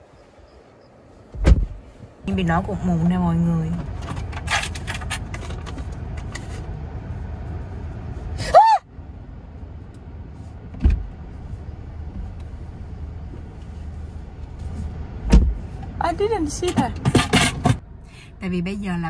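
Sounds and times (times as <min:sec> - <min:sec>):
car cabin rumble: 0:00.0 - 0:19.0
thump: 0:01.3 - 0:01.8, 0:15.3 - 0:15.6
woman screaming: 0:08.4 - 0:08.9.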